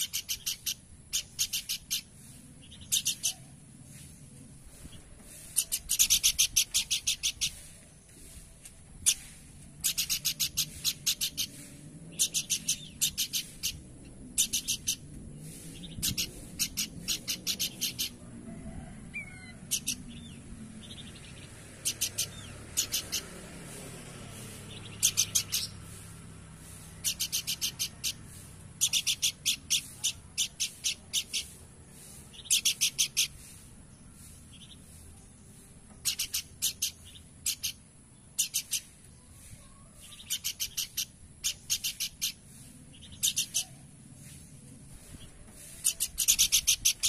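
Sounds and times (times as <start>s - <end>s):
bird singing rapid sharp notes: 0.0s - 4.2s, 4.8s - 8.4s, 9.0s - 18.2s, 19.7s - 39.4s, 40.0s - 44.5s.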